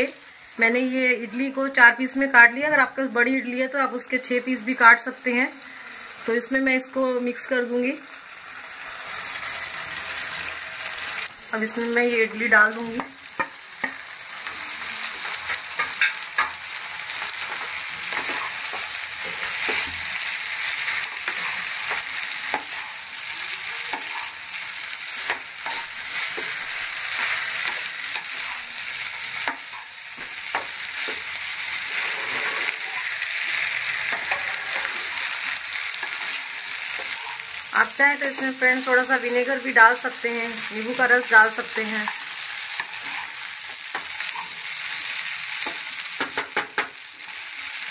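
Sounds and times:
food sizzling in a pan: 0:00.0 - 0:47.9
wooden spatula scraping a pan: 0:25.2 - 0:37.6, 0:42.0 - 0:44.6.

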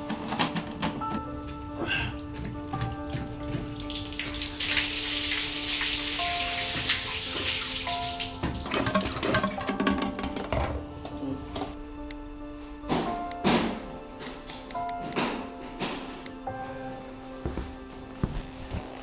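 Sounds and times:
background music of held tones: 0:00.0 - 0:19.0
water rushing and splashing: 0:03.4 - 0:09.0
plumbing clicks and knocks: 0:08.4 - 0:10.8.

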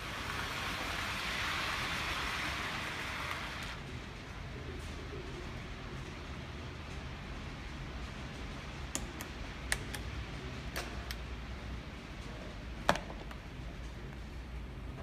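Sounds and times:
model train rumbling on track: 0:00.0 - 0:04.6.

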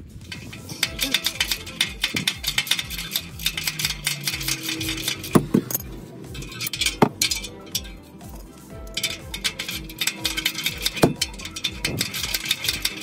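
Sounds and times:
wrench clicking on metal bolts: 0:00.3 - 0:13.0.

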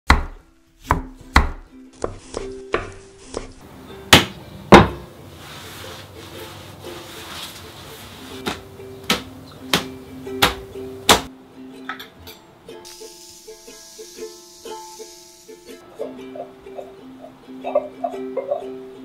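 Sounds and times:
plucked-string tune: 0:08.5 - 0:19.0.

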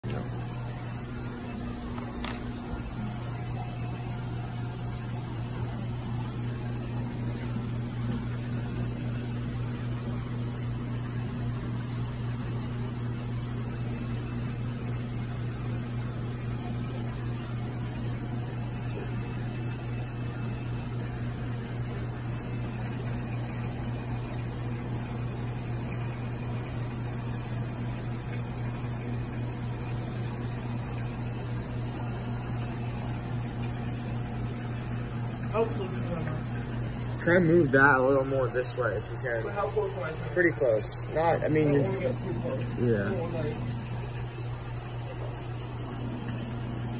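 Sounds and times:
pump humming: 0:00.0 - 0:46.9.

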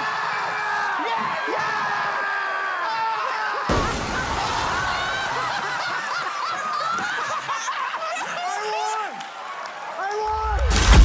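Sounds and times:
people laughing and cheering: 0:00.0 - 0:11.0
loud rush of noise: 0:10.4 - 0:11.0.

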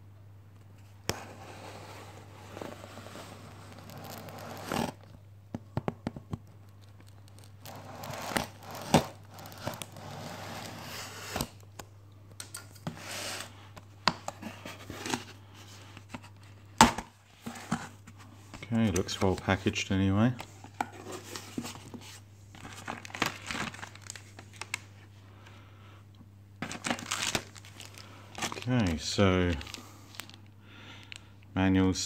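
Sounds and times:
cardboard flaps scraping: 0:01.1 - 0:05.0
packing tape tearing: 0:03.4 - 0:05.1, 0:06.8 - 0:10.1, 0:26.6 - 0:28.9.

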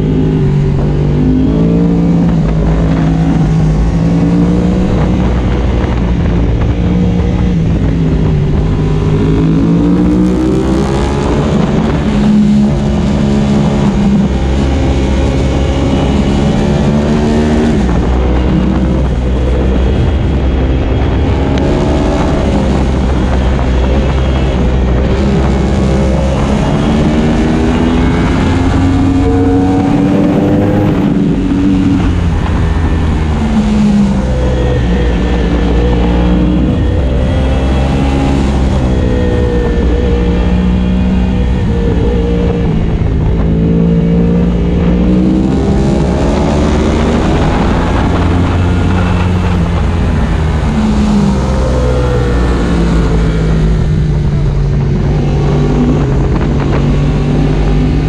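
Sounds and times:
motorcycle engine revving through gears: 0:00.0 - 0:58.0.

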